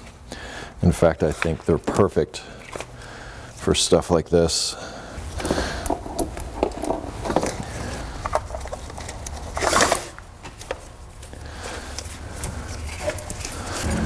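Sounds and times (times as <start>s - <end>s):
steady low hum: 10.2s - 14.0s.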